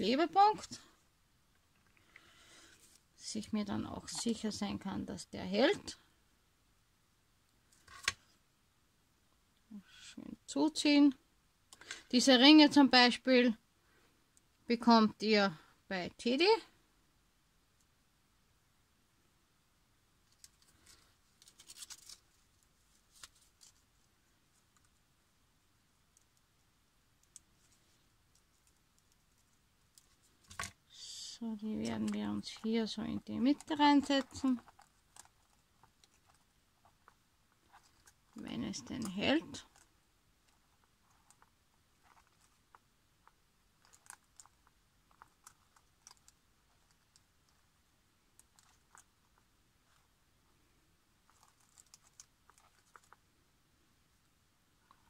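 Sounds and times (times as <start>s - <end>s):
adhesive tape crackling: 20.3s - 23.9s, 27.2s - 47.7s, 48.3s - 50.1s, 51.2s - 53.2s
paper crinkling and clicking: 20.3s - 24.0s, 31.8s - 39.9s, 40.5s - 47.6s, 48.4s - 50.1s, 51.2s - 53.2s.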